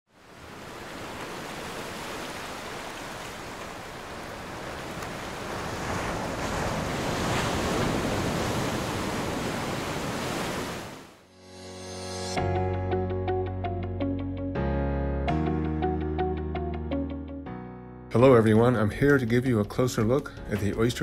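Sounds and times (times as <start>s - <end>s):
wind: 0.1s - 11.3s
small waves washing: 0.2s - 11.2s.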